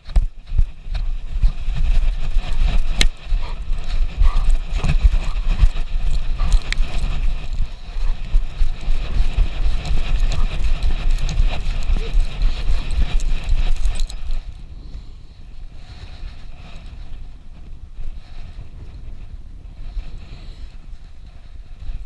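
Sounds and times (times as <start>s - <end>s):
dog paws thudding on snow: 0.0s - 14.5s
wind buffeting microphone: 0.0s - 22.0s
camera jostling: 1.5s - 14.5s.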